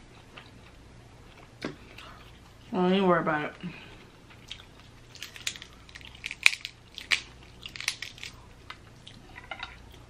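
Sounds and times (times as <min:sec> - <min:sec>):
crab shell cracking and snapping: 0:04.4 - 0:08.9.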